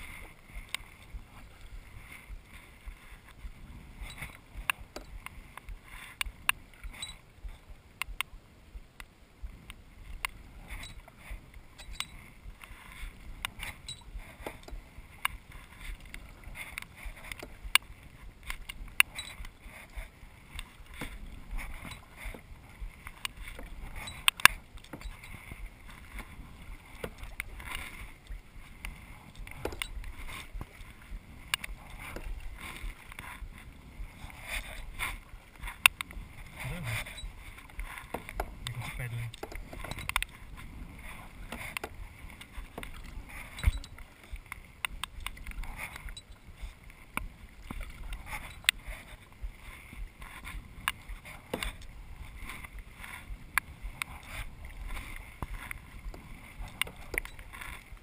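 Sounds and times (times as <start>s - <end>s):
paddle strokes in water: 0.0s - 58.0s
sharp clicks and knocks: 28.8s - 30.7s.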